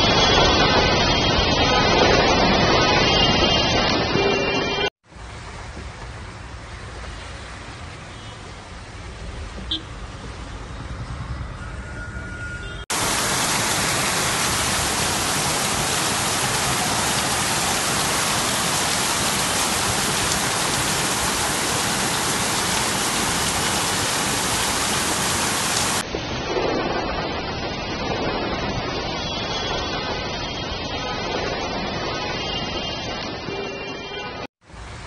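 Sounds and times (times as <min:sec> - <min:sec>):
heavy rain pouring: 0:00.0 - 0:05.4, 0:12.9 - 0:35.0.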